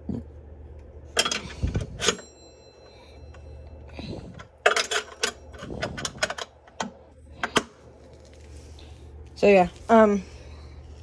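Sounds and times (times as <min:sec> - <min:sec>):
faint metallic ring: 0:01.2 - 0:05.6.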